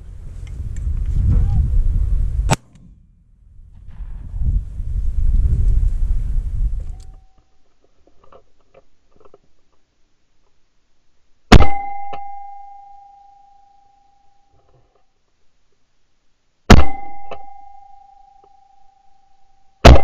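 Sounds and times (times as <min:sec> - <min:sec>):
wind buffeting microphone: 0:00.0 - 0:07.2
shotgun shot: 0:02.5 - 0:03.2, 0:11.5 - 0:11.9, 0:16.7 - 0:17.1.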